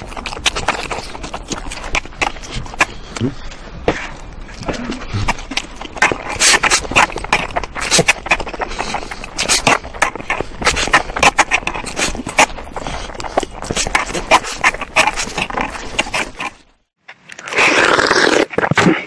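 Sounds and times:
chewing and mouth smacks: 0.0s - 3.5s, 4.2s - 16.6s
man slurping noodles: 17.4s - 19.0s.

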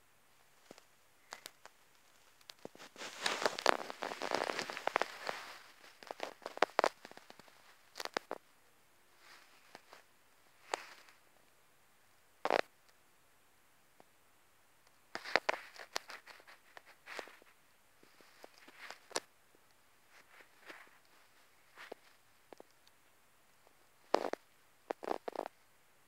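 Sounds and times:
hamster rustling on fabric: 0.6s - 8.3s, 15.2s - 19.3s, 20.1s - 22.2s.

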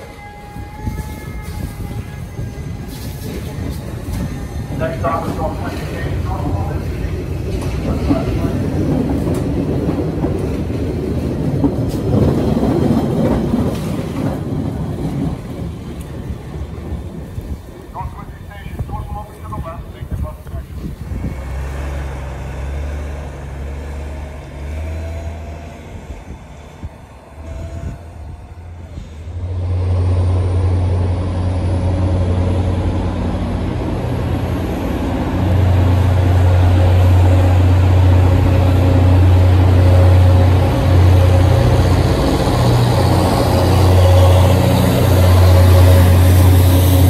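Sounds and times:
diesel locomotive droning: 0.0s - 47.0s
bus engine pulling away: 20.2s - 47.0s.

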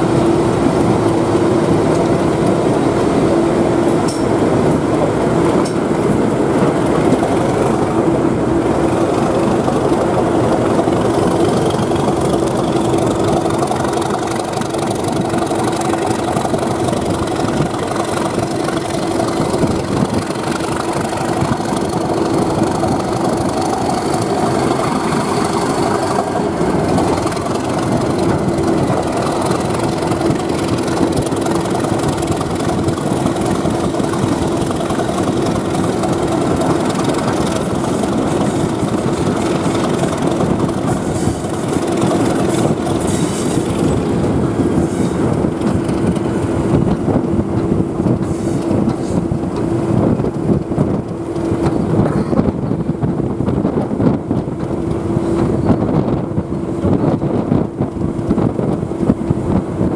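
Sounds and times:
diesel locomotive engine droning: 0.0s - 59.9s
train running on rails: 0.0s - 59.9s.

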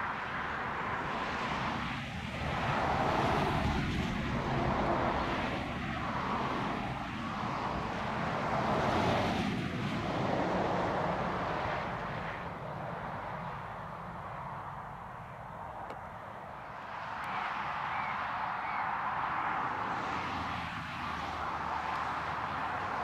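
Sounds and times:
distant engine drone: 0.1s - 23.0s.

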